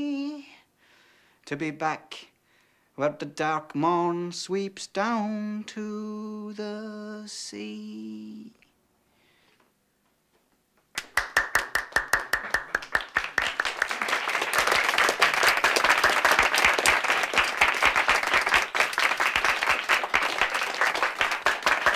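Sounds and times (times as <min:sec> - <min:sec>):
people clapping: 0:11.0 - 0:21.9.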